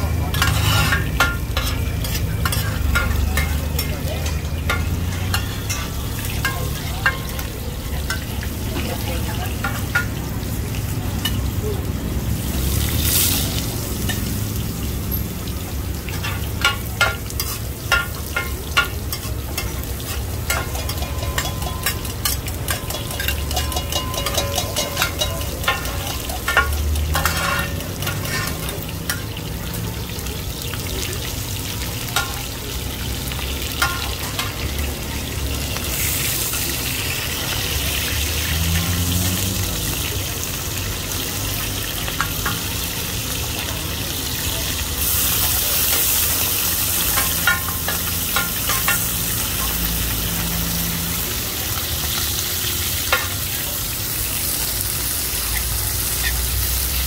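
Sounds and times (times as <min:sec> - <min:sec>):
metal spatula scraping pan: 0:00.0 - 0:07.5, 0:16.2 - 0:29.4, 0:47.0 - 0:49.8
food sizzling in oil: 0:00.0 - 0:57.0.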